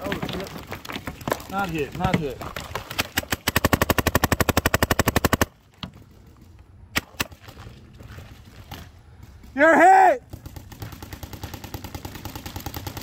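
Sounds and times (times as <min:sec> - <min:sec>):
paintball marker firing: 0:02.9 - 0:05.5, 0:06.9 - 0:07.5.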